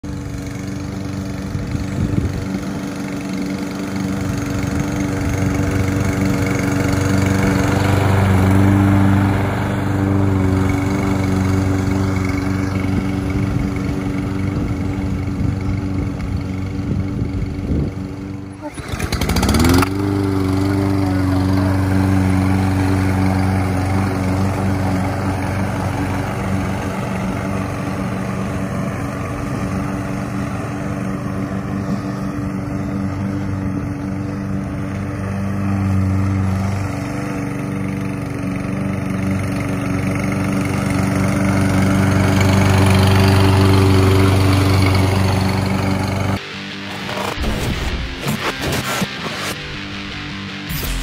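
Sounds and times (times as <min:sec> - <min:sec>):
lawn mower engine running: 0:00.0 - 0:51.0.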